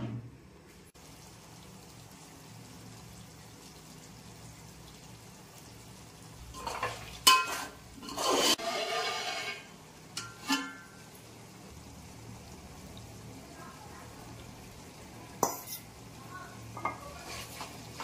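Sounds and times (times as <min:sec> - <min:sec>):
pot swishing and scraping: 0:06.6 - 0:10.8, 0:17.0 - 0:18.0.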